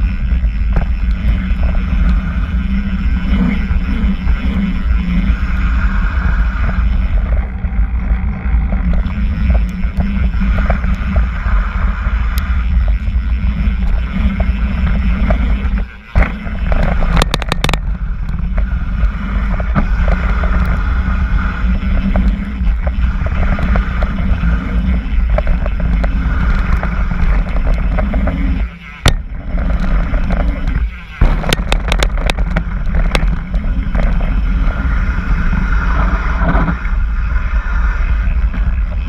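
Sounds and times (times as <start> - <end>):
bike clattering: 0.0 - 37.8
bike tyres rumbling on gravel: 0.0 - 39.0
wind on microphone: 0.0 - 39.0.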